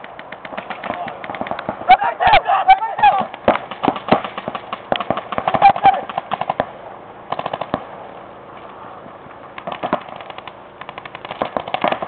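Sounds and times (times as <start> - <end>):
paintball markers firing: 0.0 - 1.9, 3.2 - 6.7, 7.3 - 7.9, 9.6 - 12.0.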